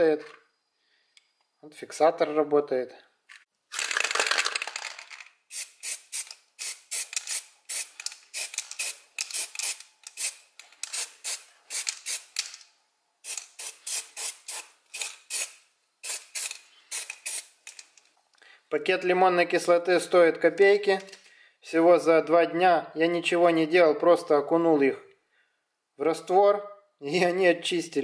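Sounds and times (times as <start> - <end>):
spray-paint can hissing in bursts: 5.5 - 12.4, 13.2 - 17.6.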